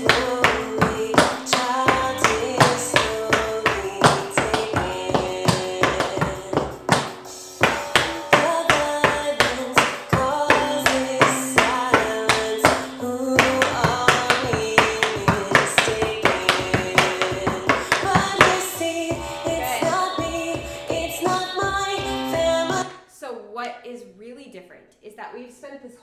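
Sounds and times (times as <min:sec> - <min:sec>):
woman singing slow song: 0:00.0 - 0:07.0, 0:07.6 - 0:22.9
tap shoes on wooden board: 0:00.0 - 0:18.7.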